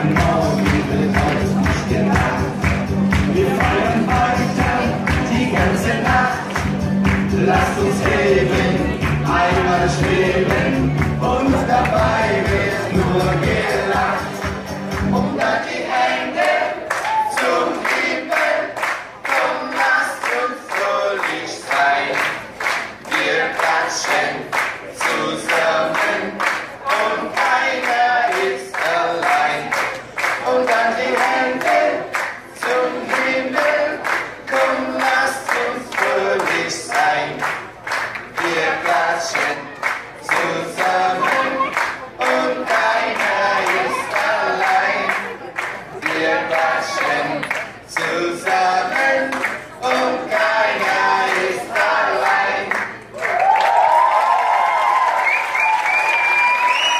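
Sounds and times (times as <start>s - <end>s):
hand claps: 0.0s - 8.2s, 16.4s - 53.8s
group singing unaccompanied: 0.0s - 22.4s, 23.1s - 53.0s.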